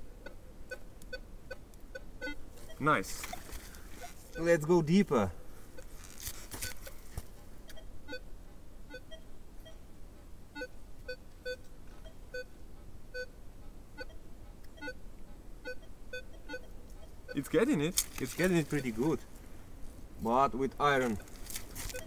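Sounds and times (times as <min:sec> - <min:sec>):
metal detector beeps: 0:00.2 - 0:04.7, 0:08.9 - 0:09.8, 0:10.6 - 0:12.5, 0:13.1 - 0:13.3, 0:14.8 - 0:15.0, 0:15.6 - 0:17.6, 0:21.8 - 0:22.0.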